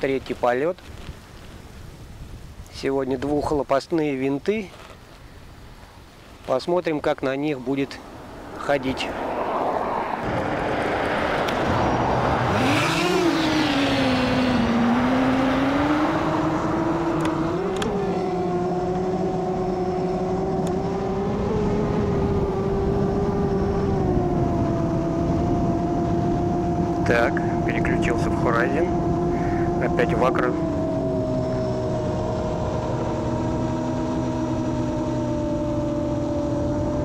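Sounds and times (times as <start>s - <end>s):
quadcopter propellers whining: 7.6s - 37.0s
rush of air: 8.0s - 13.3s.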